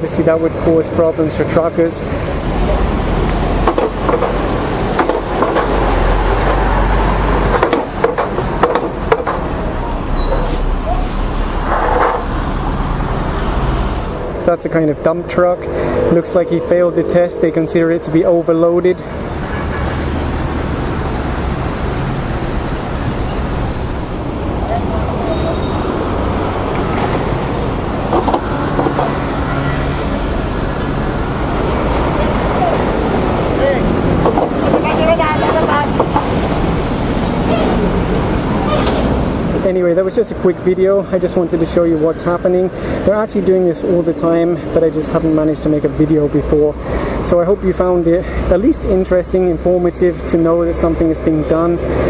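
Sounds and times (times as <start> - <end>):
heavy truck engine: 0.0 - 43.2
road traffic rumble: 0.0 - 52.0
sharp clicks and knocks: 3.2 - 6.7, 7.4 - 9.5, 28.1 - 29.2, 34.2 - 36.4.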